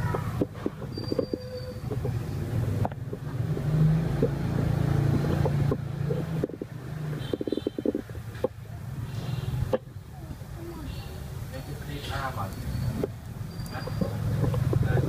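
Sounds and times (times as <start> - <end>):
vehicle engine hum: 0.0 - 15.0.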